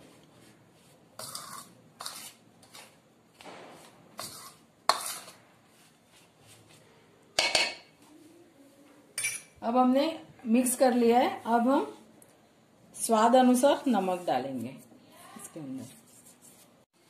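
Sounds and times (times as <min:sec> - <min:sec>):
metal spoon scraping steel bowl: 0:01.2 - 0:03.0, 0:04.2 - 0:05.4.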